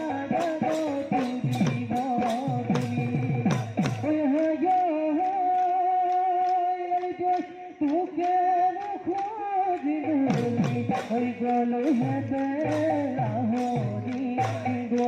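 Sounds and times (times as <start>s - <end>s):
dhol drum strokes: 0.0s - 4.8s, 10.0s - 15.0s.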